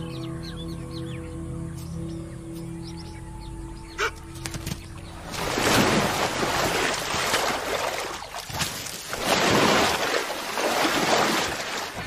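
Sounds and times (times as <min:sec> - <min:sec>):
water splashing and churning: 0:05.0 - 0:12.0.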